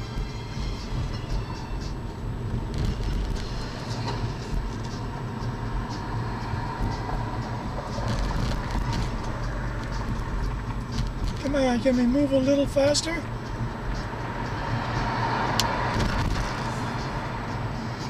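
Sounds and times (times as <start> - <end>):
car engine and tyres rumbling: 0.0 - 18.0.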